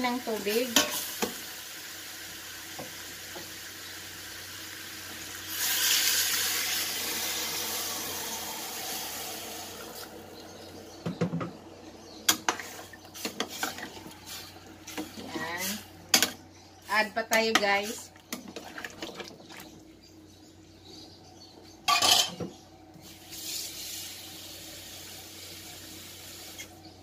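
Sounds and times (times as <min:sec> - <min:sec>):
sizzling in a pot: 0:00.0 - 0:11.0, 0:12.3 - 0:18.1, 0:23.0 - 0:27.0
water pouring into a pot: 0:04.0 - 0:10.5.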